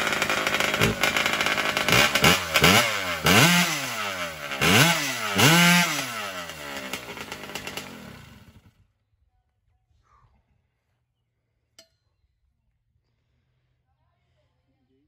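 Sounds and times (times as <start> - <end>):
two-stroke chainsaw engine revving: 0.0 - 8.7.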